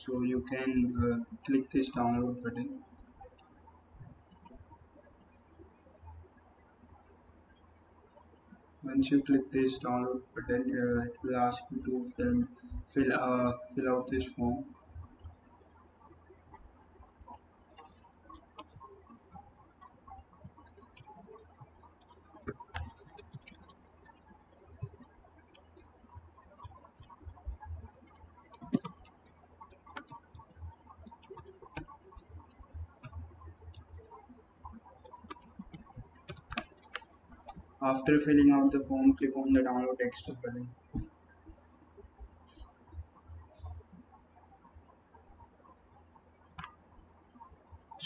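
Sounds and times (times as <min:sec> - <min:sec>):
low steady hum: 0:00.0 - 0:48.0
mouse clicks: 0:04.3 - 0:04.6, 0:16.5 - 0:24.2, 0:24.8 - 0:37.7
keyboard typing: 0:16.5 - 0:38.5.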